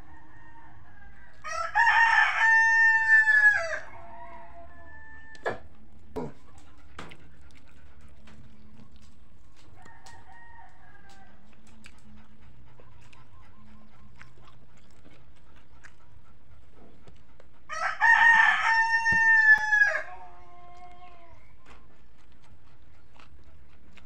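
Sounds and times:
rooster crowing: 0.0s - 5.6s, 9.8s - 11.5s, 17.7s - 21.3s.

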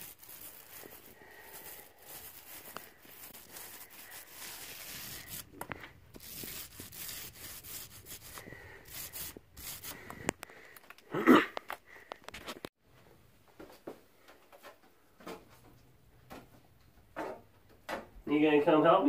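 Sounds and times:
paint roller rubbing on wall: 0.0s - 10.2s.

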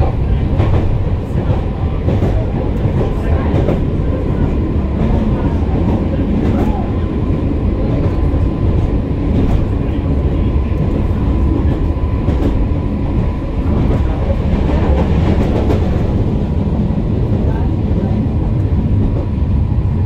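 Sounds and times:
tram rumbling on tracks: 0.0s - 20.0s.

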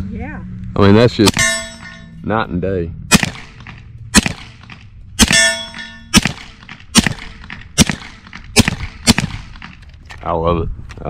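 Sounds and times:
suppressed pistol shots: 1.2s - 1.9s, 3.1s - 9.8s
bullet clanging steel plate: 1.2s - 2.2s, 3.2s - 9.9s.

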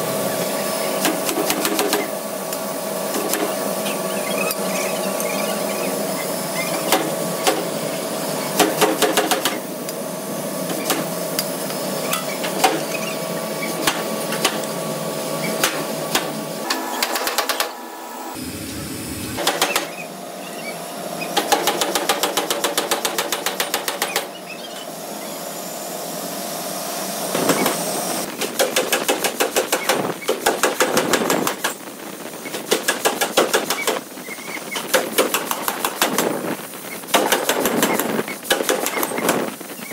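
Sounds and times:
machinery humming: 0.0s - 21.8s.

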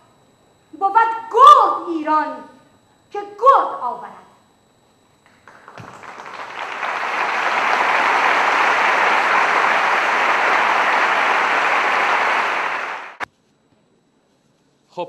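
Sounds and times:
audience applauding: 5.3s - 13.2s.

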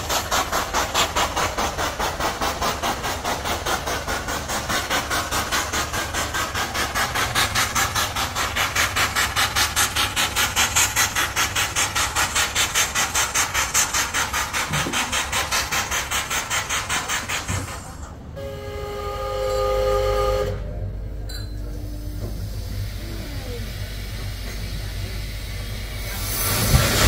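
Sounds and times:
steam hissing in rhythmic puffs: 0.0s - 27.0s
steam whistle blast: 18.4s - 20.8s
low short tone: 20.4s - 22.4s.

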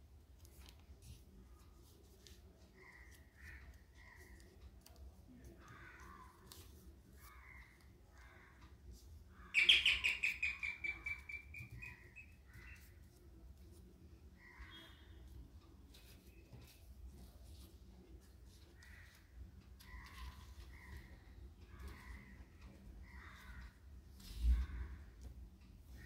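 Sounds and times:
bird trilling: 9.4s - 12.8s
bird chirps: 9.5s - 12.9s, 14.4s - 15.3s.

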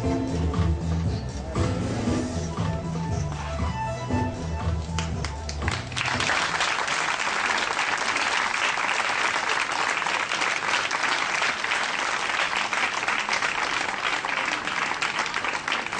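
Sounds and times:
audience applauding: 4.9s - 15.9s.

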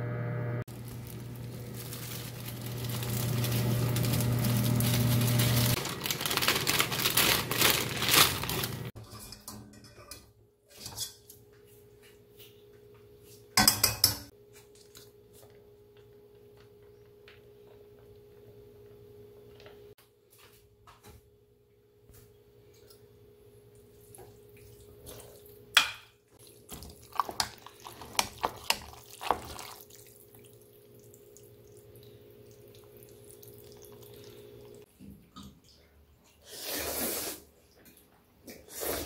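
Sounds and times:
low hum: 0.0s - 5.8s
pot and utensils clinking: 9.0s - 11.4s, 13.6s - 14.3s.

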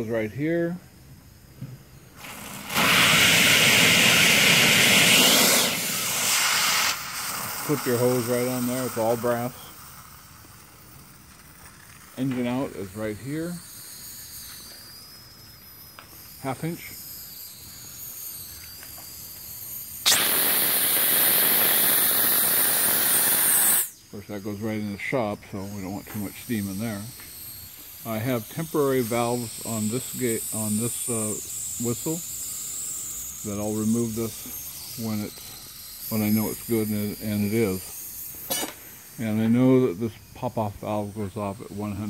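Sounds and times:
loud steam hiss from valve: 2.2s - 11.2s, 19.9s - 25.1s, 25.7s - 42.0s.

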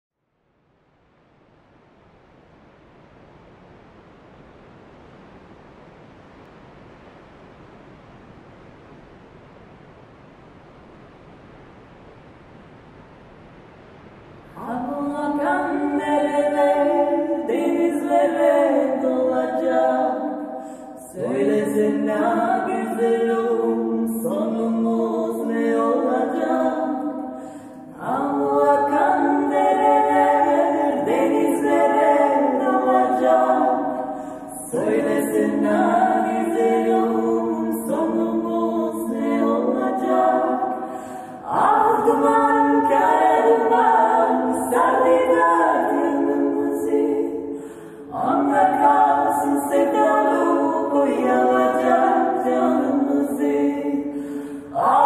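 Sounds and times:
faint hiss: 0.2s - 55.0s
women singing in harmony: 14.6s - 55.0s.

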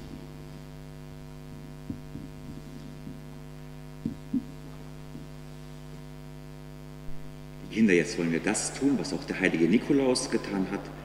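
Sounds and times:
electrical mains hum: 0.0s - 11.0s
microphone handling knocks: 1.6s - 3.3s, 4.0s - 5.4s.

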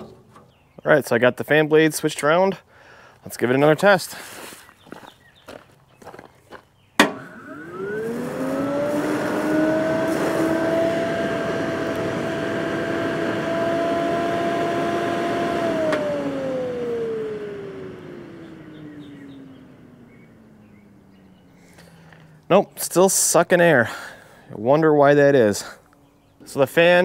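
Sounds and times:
electric cooling fan whining: 7.0s - 22.4s.

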